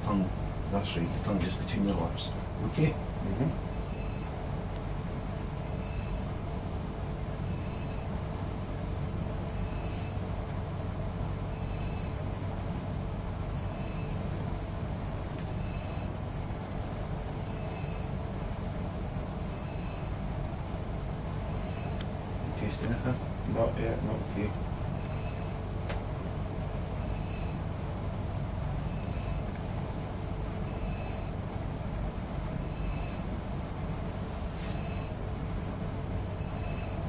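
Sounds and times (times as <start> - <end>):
steady low hum: 0.0 - 37.0
nebulizer hissing puffs: 5.6 - 6.3, 7.4 - 8.1, 9.6 - 10.2, 13.6 - 14.3, 19.5 - 20.2, 21.4 - 22.1, 25.0 - 25.6, 30.7 - 31.3, 34.4 - 35.2.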